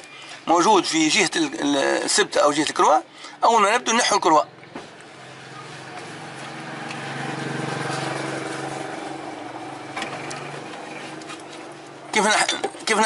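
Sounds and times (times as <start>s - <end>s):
vehicle engine running: 4.5s - 12.1s.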